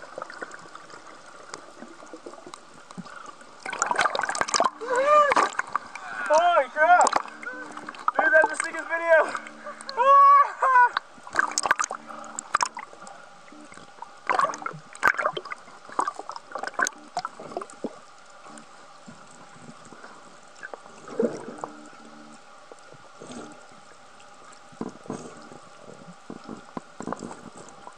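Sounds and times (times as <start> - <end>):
faint steady hum: 0.0 - 27.9
underwater sloshing and gurgling: 0.0 - 27.9
splashes and knocks: 3.0 - 6.4, 7.0 - 8.7, 11.3 - 12.8, 14.2 - 17.7.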